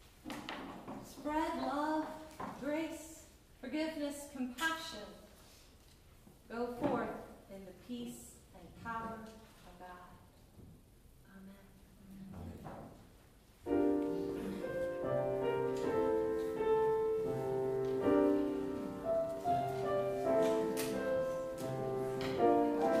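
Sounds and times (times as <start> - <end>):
piano playing chords: 13.7 - 23.0.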